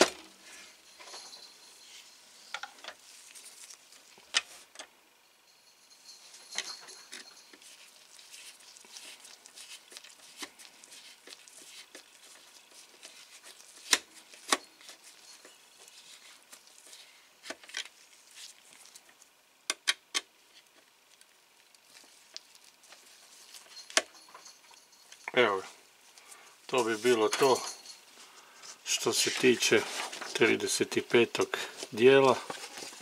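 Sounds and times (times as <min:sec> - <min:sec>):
faint scraping and handling noise: 0:00.2 - 0:04.8, 0:05.5 - 0:19.4, 0:20.3 - 0:33.0.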